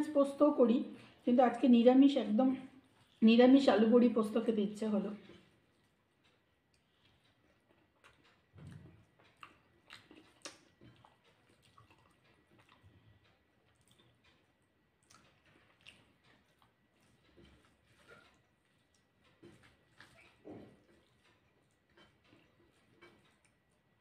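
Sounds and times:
person chewing: 2.8 - 3.2, 5.2 - 24.0.

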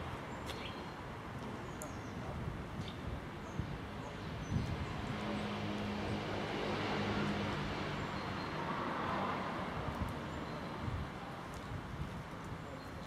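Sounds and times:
vehicle passing by: 5.0 - 9.8.

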